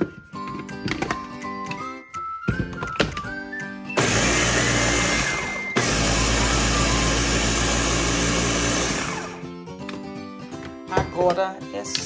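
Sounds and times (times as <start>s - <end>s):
blender motor grinding: 4.0s - 9.6s.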